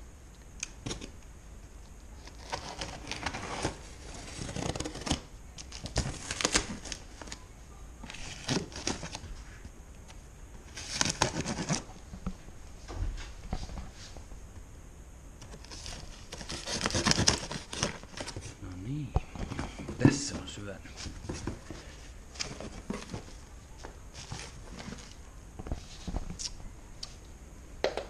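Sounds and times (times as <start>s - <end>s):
cardboard parcel scraping and crinkling: 2.2s - 7.4s, 8.1s - 9.6s, 10.7s - 11.9s, 15.5s - 18.7s, 19.4s - 26.2s.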